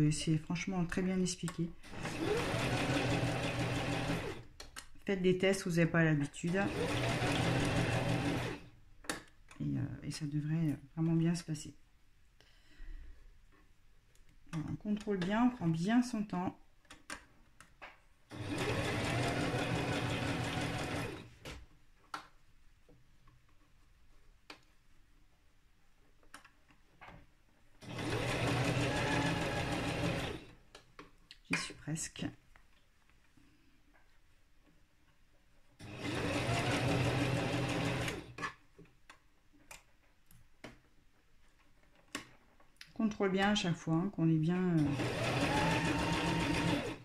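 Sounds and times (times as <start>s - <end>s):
electric sewing machine stitching: 1.8s - 4.5s, 6.4s - 8.7s, 18.3s - 21.5s, 27.8s - 30.6s, 35.8s - 38.5s, 44.7s - 47.0s.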